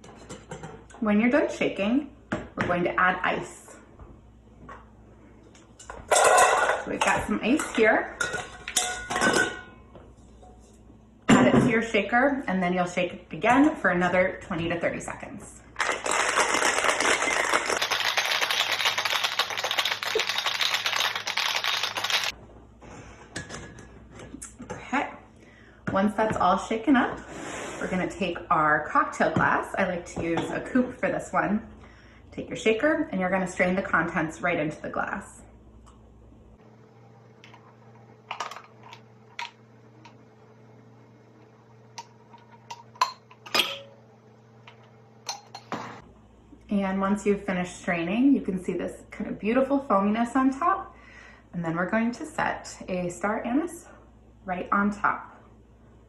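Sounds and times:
ice rattling in metal shaker: 15.8 - 22.3.

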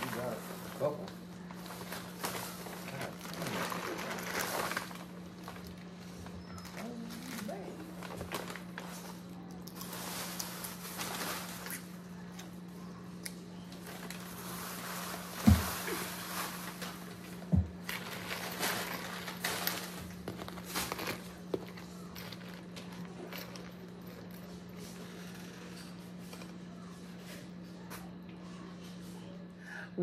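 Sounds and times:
low electrical hum: 0.0 - 30.0
dull thumps: 15.4 - 15.9.

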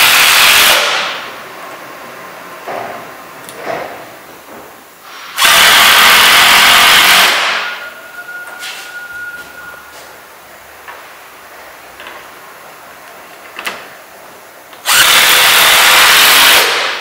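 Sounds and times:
cordless drill driving a screw: 5.4 - 7.6, 14.8 - 16.9.

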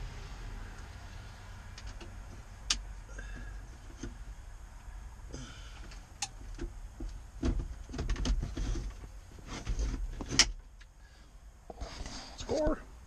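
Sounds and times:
plastic and metal scraping: 6.4 - 10.7.

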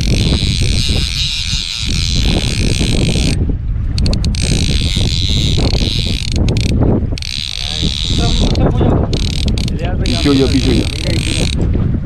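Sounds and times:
boat diesel engine rumbling: 0.0 - 12.0.

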